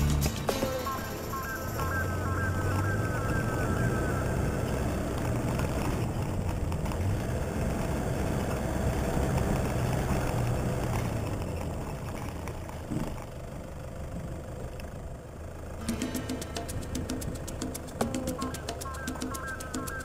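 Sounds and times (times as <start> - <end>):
tyres rattling over rough ground: 0.0 - 20.0
vehicle engine running: 0.0 - 20.0.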